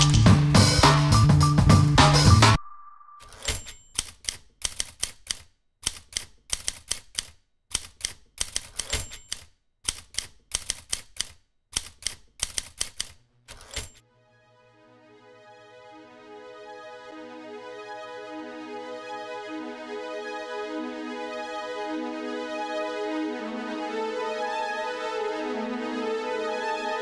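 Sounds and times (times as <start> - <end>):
typewriter keystrokes clacking: 3.2 - 14.0
soft keyboard music: 14.4 - 27.0.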